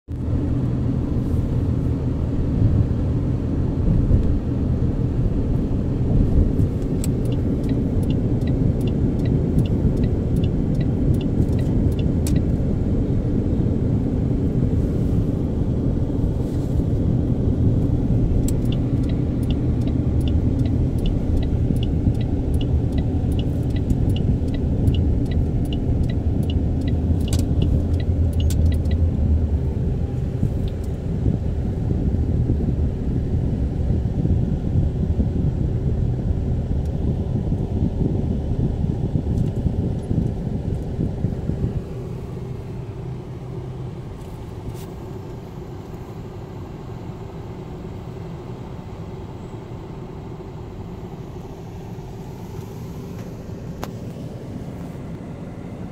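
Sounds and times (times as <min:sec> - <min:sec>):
road noise inside a car: 0:00.1 - 0:55.9
light regular ticking: 0:06.8 - 0:12.6, 0:18.3 - 0:29.2.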